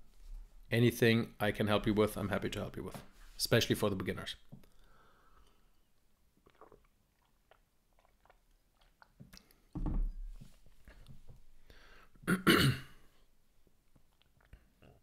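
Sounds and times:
man coughing: 12.3 - 13.0.

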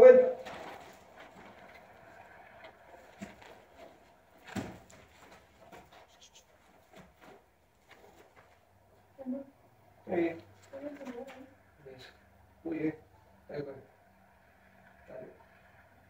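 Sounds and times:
horse hooves on dirt: 0.3 - 9.1.

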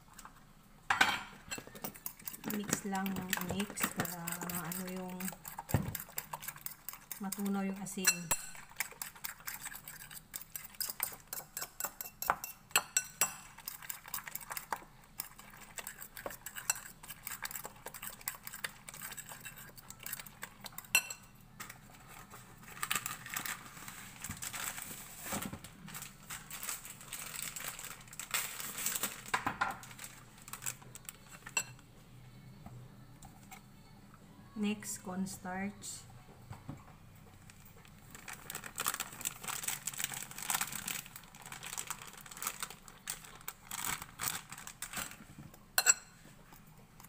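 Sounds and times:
spoon clinking in bowl: 7.3 - 8.7, 45.8 - 46.2
soft scraping and rustling: 21.6 - 27.3.

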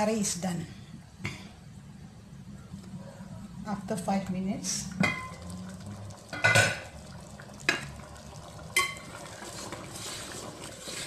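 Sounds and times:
gravy swishing being stirred: 9.2 - 11.0.

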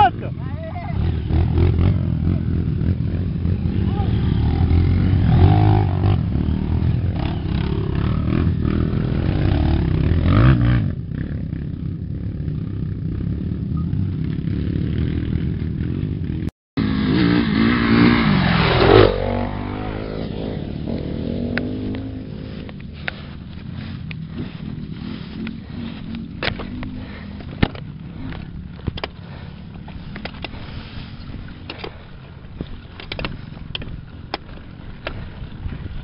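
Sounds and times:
dirt bike engines revving: 0.0 - 36.0.

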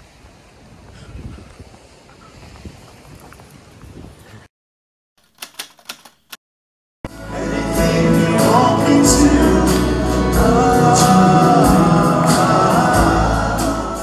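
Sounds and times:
song with vocals over a beat: 7.1 - 14.0.

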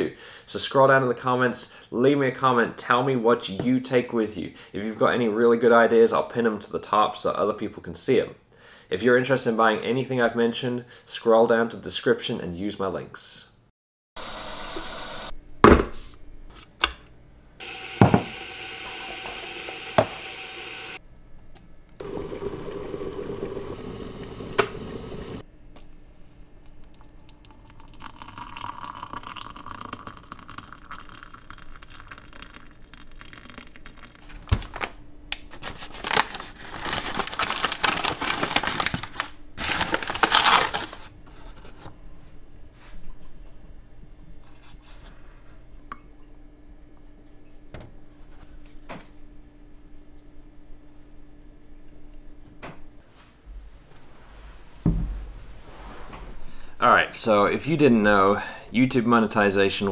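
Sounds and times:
hot water pouring into mug: 17.6 - 21.0, 22.0 - 25.4, 26.8 - 34.2
tap water filling kettle: 17.6 - 21.0, 22.0 - 25.4, 27.0 - 33.7
paper bag crinkling: 34.0 - 41.1.

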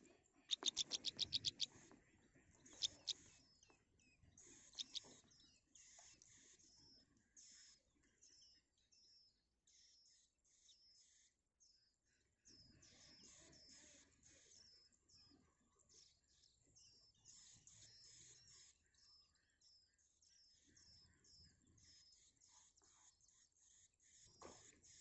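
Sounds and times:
songbird nestlings chirping: 0.4 - 1.7, 2.6 - 7.6.

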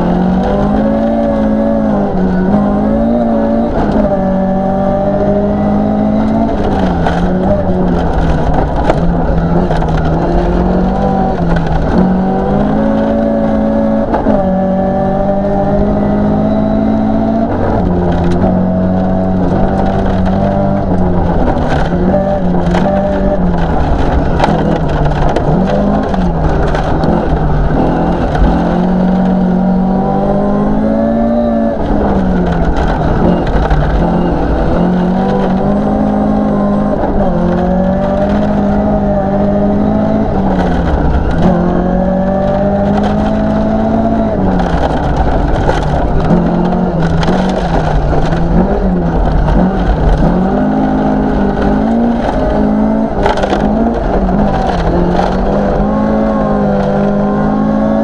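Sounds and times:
car engine revving: 0.0 - 58.0
tyres crunching on gravel: 30.3 - 57.9.

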